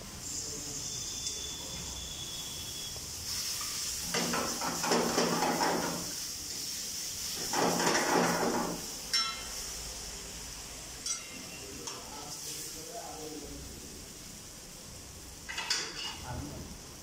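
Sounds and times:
pasta sizzling in frying pan: 0:00.1 - 0:13.0, 0:13.8 - 0:17.0
tongs and ladle stirring in pan: 0:03.3 - 0:09.6, 0:11.0 - 0:12.6.

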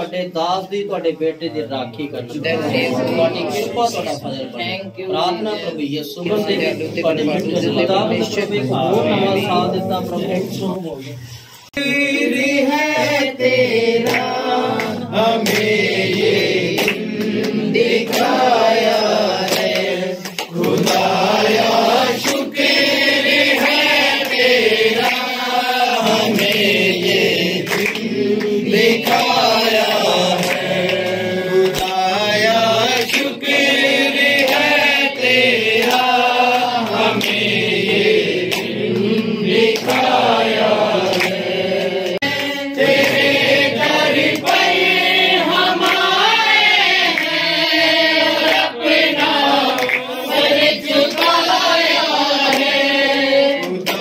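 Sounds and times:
group singing worship song: 0:01.6 - 0:54.0
hands clapping: 0:07.2 - 0:07.8, 0:12.4 - 0:54.0.

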